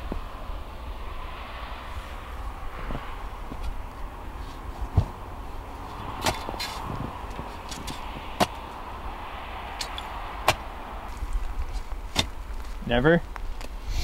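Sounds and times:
steady low rumble: 0.0 - 14.0
dull thump: 4.8 - 5.2, 6.0 - 8.6, 9.8 - 10.7, 11.7 - 12.6
shovel scraping dirt: 5.8 - 8.8, 9.8 - 12.8.

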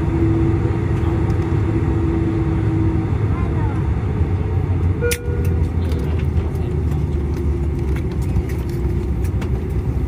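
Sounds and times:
airliner cabin rumble: 0.0 - 10.0.

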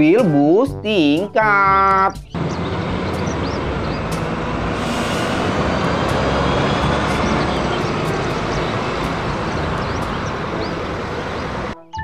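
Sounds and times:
loud engine-like rushing noise: 2.4 - 11.8.

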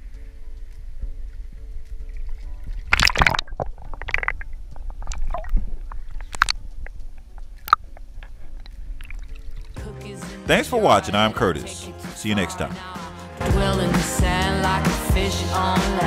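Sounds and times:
faint background music: 0.0 - 16.0
water splashing against kayak: 2.2 - 6.8.

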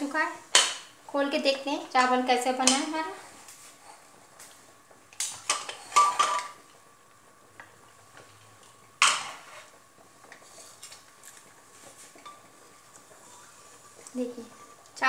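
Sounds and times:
pot lid scraping and clanking: 5.5 - 6.6, 9.0 - 9.8.

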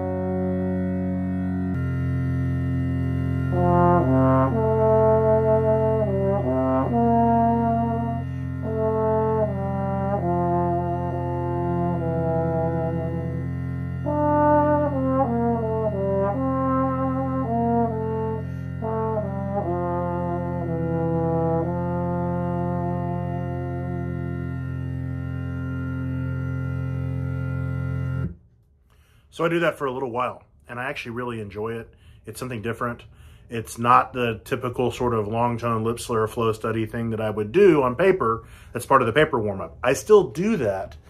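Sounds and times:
low cello drone: 0.0 - 28.4
trombone playing slow melody: 0.0 - 28.4.

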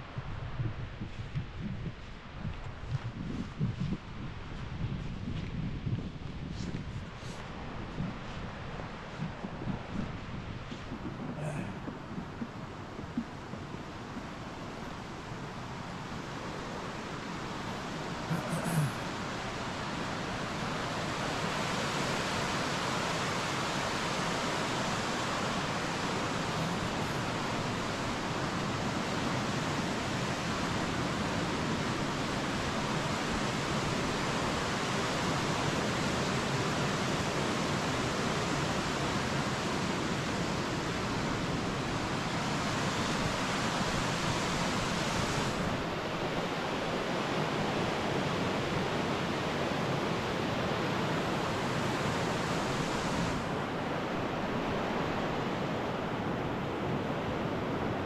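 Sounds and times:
waterfall rushing: 16.2 - 47.8, 48.7 - 55.3.

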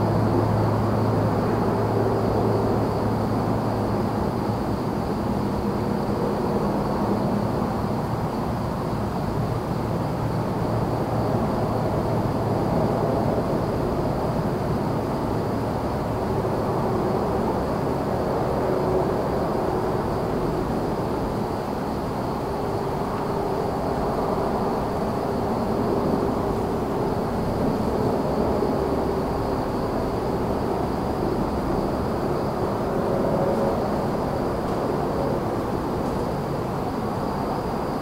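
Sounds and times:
crickets trilling: 0.0 - 38.0
distant highway traffic: 0.0 - 38.0.

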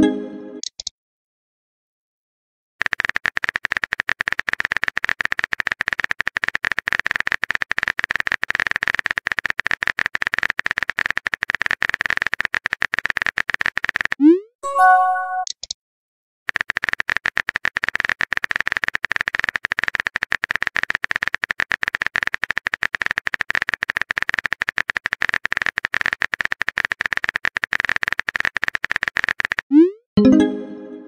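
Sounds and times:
phone keyboard typing clicks: 0.6 - 0.9, 2.8 - 14.2, 14.8 - 15.8, 16.5 - 29.7
synthesized message tones: 14.2 - 15.5, 29.7 - 31.0.

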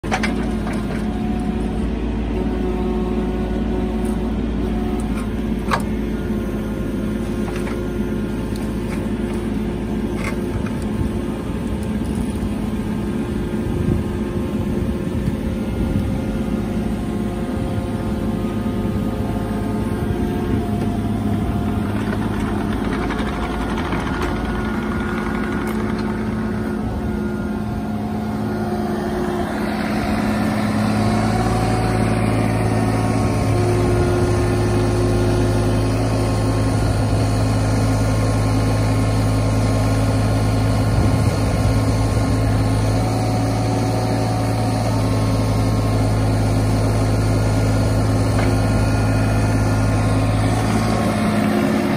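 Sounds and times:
diesel engine running: 0.0 - 51.9
hydraulics lifting: 19.6 - 51.9.

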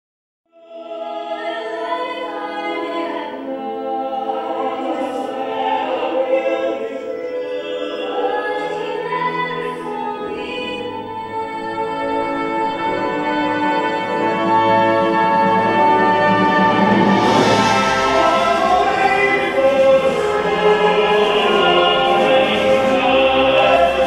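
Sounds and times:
several voices singing: 0.6 - 24.0
instrumental accompaniment: 11.0 - 24.0.

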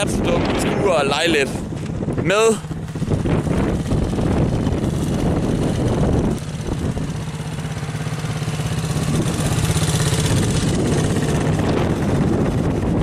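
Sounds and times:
atv engine idling: 1.2 - 13.0.

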